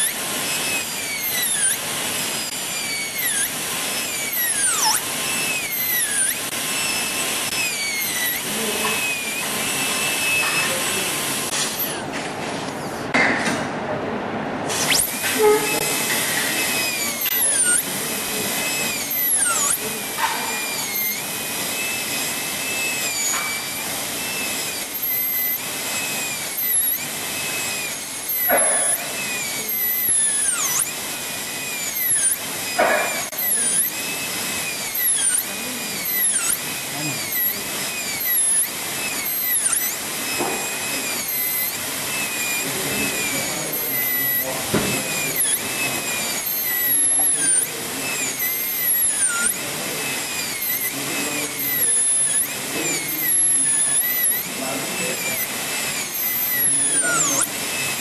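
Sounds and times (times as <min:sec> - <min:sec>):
dental drill whine: 0:00.0 - 0:13.6, 0:14.6 - 0:58.0.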